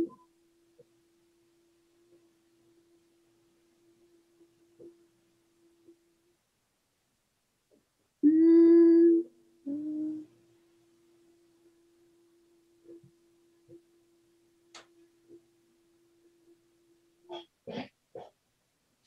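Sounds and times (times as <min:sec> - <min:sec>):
woman humming: 0:08.2 - 0:10.3.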